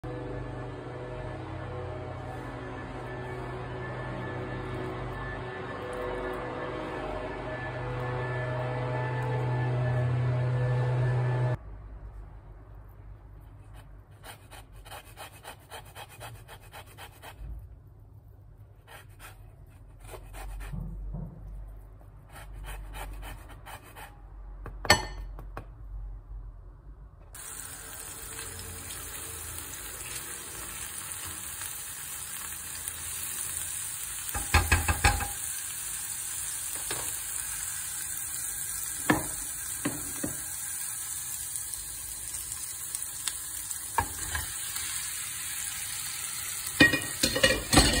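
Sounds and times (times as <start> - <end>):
oil sizzling in a frying pan: 27.3 - 48.0
spatula stirring and knocking pan: 34.4 - 35.4.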